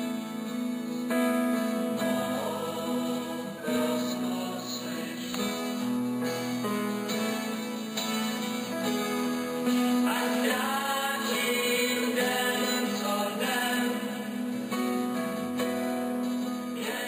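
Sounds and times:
pipe organ chords: 0:00.0 - 0:16.8
voices singing a hymn: 0:01.8 - 0:06.6, 0:10.0 - 0:15.7, 0:16.4 - 0:17.0.

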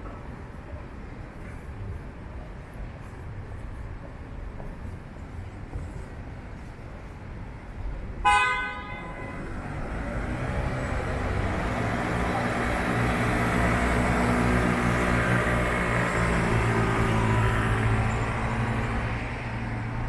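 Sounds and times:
city street noise: 0:00.0 - 0:20.0
vehicle horn toot: 0:08.2 - 0:09.5
vehicle engine hum: 0:09.3 - 0:20.0.

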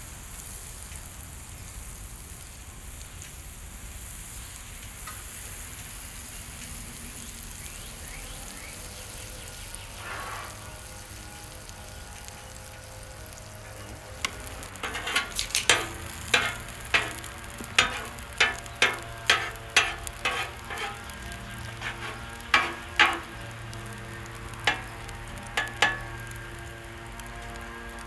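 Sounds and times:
egg mixture sizzling on griddle: 0:00.0 - 0:28.0
utensils tapping and scraping: 0:13.8 - 0:26.3.

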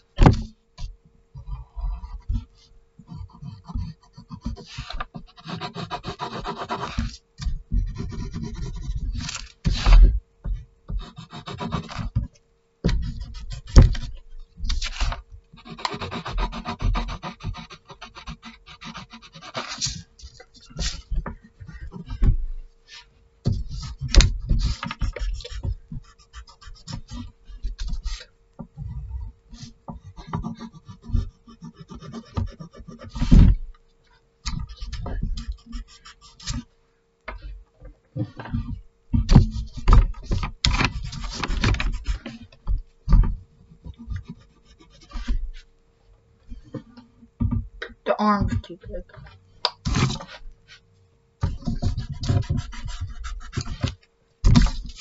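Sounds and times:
pencil sketching on paper: 0:03.1 - 0:10.0, 0:11.0 - 0:12.1, 0:12.9 - 0:14.2, 0:14.9 - 0:22.2, 0:22.9 - 0:28.3, 0:29.5 - 0:33.3, 0:34.7 - 0:36.7, 0:44.0 - 0:45.6, 0:51.5 - 0:53.9
hand rubbing paper: 0:03.3 - 0:10.0, 0:13.0 - 0:22.2, 0:22.8 - 0:28.3.

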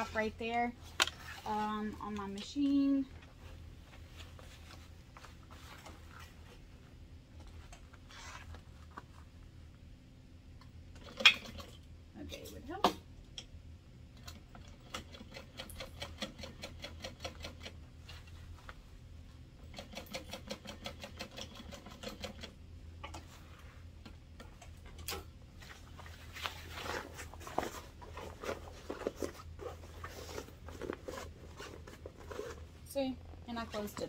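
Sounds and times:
fabric rustling: 0:02.6 - 0:06.7, 0:25.5 - 0:33.9.

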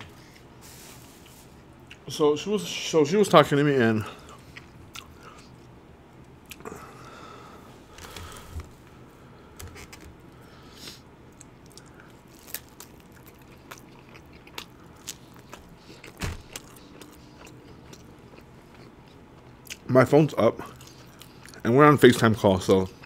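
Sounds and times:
man chewing food: 0:04.2 - 0:07.2, 0:09.6 - 0:19.9, 0:20.6 - 0:21.6.

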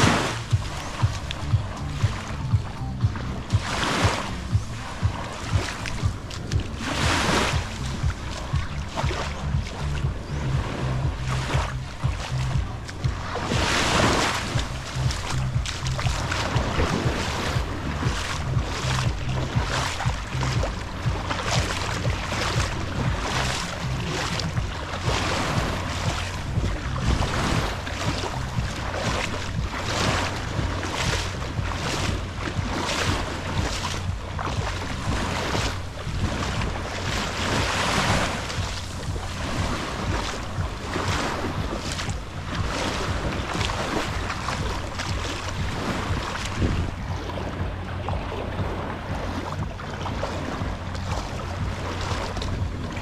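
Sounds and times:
footsteps splashing in shallow water: 0:00.0 - 0:53.0
wind rumbling on microphone: 0:00.0 - 0:53.0.

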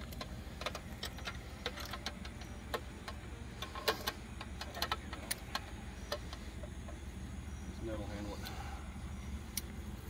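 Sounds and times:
gear clicking and tapping: 0:00.0 - 0:07.0
steady low hum: 0:00.0 - 0:10.0.

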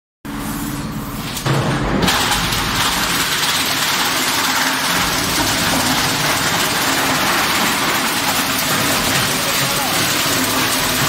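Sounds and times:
plastic granulator grinding: 0:01.2 - 0:11.0.

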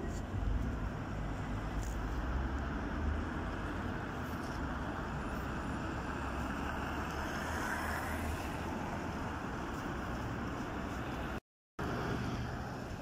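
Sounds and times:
moving car road noise: 0:00.0 - 0:13.0.

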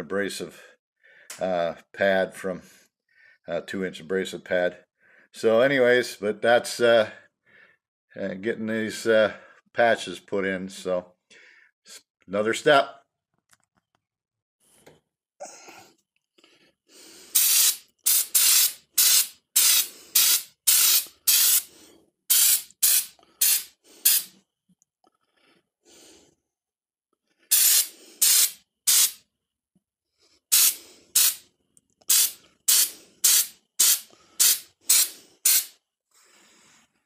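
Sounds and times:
aerosol can spraying in hissing bursts: 0:17.3 - 0:21.7, 0:22.3 - 0:24.4, 0:27.5 - 0:29.2, 0:30.5 - 0:31.4, 0:32.1 - 0:35.8.

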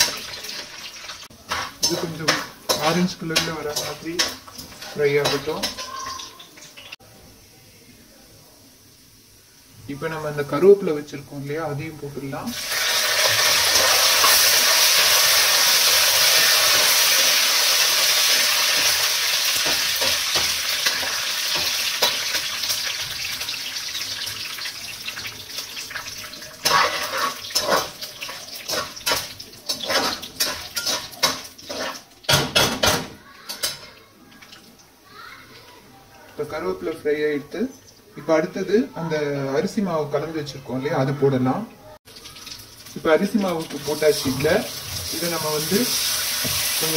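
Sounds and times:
stirring scraping in pan: 0:00.0 - 0:06.9, 0:24.2 - 0:32.1
leaves sizzling in hot oil: 0:00.0 - 0:32.7, 0:42.1 - 0:46.9.

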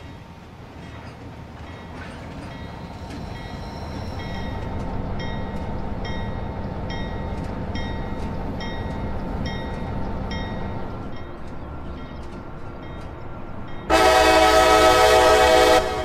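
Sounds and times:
train rumbling: 0:00.0 - 0:16.0.

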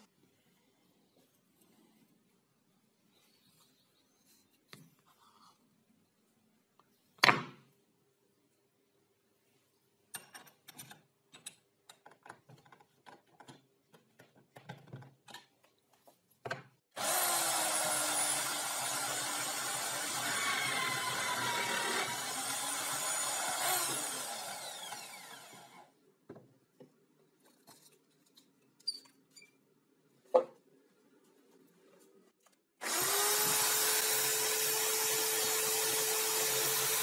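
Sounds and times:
power drill boring wood: 0:17.0 - 0:25.9, 0:32.8 - 0:37.0.

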